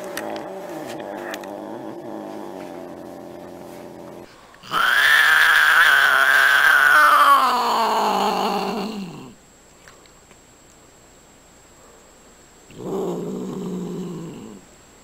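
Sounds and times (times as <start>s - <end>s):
cat yowling: 4.6s - 9.0s.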